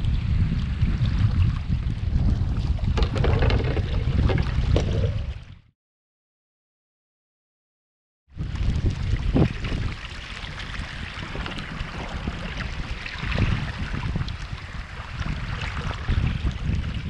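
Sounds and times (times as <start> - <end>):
water splashing along hull: 0.0 - 5.7, 8.4 - 17.0
wind buffeting microphone: 0.0 - 5.7, 8.3 - 17.0.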